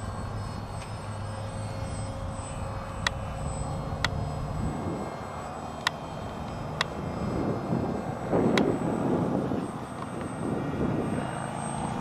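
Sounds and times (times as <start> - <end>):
model plane motor drone: 0.0 - 12.0.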